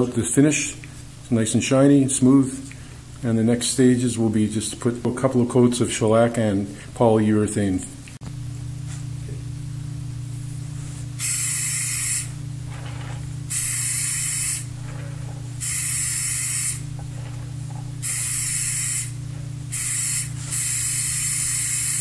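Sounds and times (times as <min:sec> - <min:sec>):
aerosol spray can hissing: 0:11.2 - 0:12.4, 0:13.5 - 0:14.7, 0:15.6 - 0:16.9, 0:18.0 - 0:22.0.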